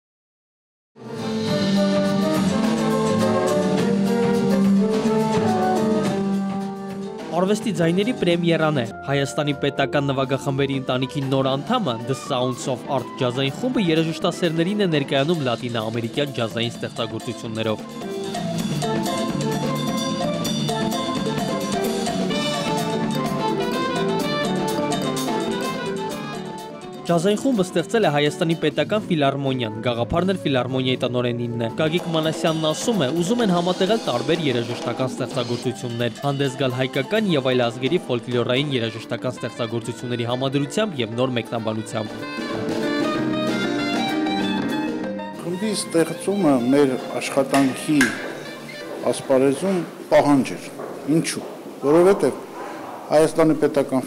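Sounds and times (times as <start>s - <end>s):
drum kit with cymbals: 1.0s - 8.7s, 12.6s - 29.1s, 31.8s - 38.5s, 41.8s - 51.6s
flute melody: 1.0s - 28.7s, 29.6s - 50.6s
keyboard: 1.0s - 54.0s
latin jazz band playing: 1.0s - 54.0s.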